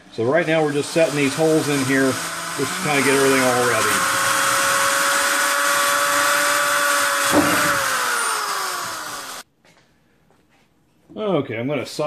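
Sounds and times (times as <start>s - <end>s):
electric drill whining: 0.0s - 9.4s.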